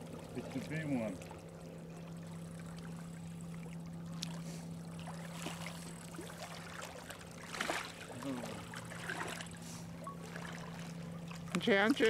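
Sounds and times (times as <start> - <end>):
steady low hum: 0.0 - 12.0
waves lapping on rocky shore: 5.1 - 12.0.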